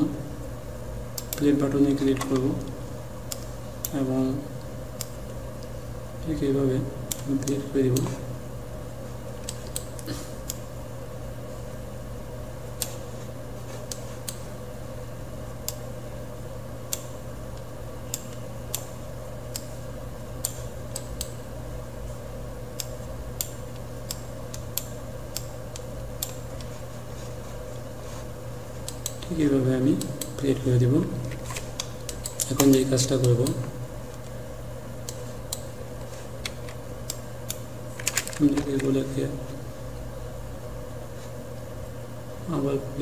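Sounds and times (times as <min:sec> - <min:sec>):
steady low hum: 0:00.0 - 0:43.0
computer mouse clicking: 0:01.2 - 0:01.5, 0:28.8 - 0:29.4, 0:31.3 - 0:33.6.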